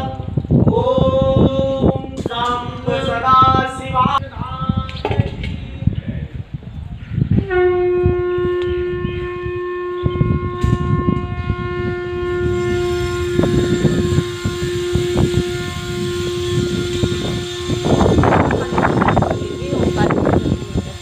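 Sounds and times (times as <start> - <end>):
loud steady horn-like tone: 7.2 - 21.0.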